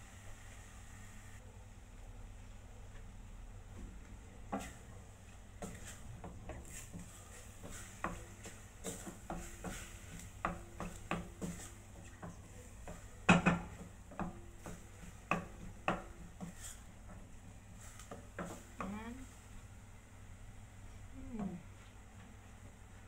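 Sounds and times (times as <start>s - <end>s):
wooden spatula scraping metal pot: 5.6s - 19.4s.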